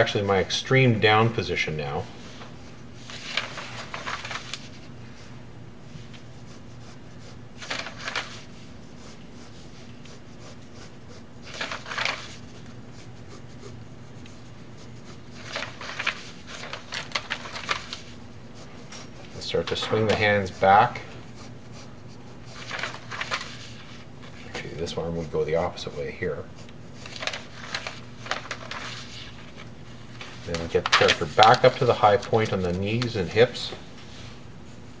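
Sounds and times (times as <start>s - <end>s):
paper sheets rustling: 2.2s - 5.3s, 7.6s - 8.7s, 11.4s - 13.1s, 14.2s - 21.0s, 22.4s - 24.8s, 27.0s - 34.4s
pencil scratching on paper: 6.2s - 24.0s, 24.9s - 29.2s.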